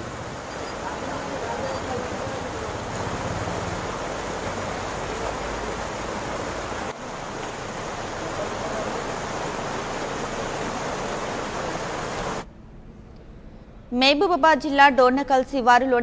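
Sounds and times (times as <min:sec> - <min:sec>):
water rushing: 0:00.0 - 0:12.5.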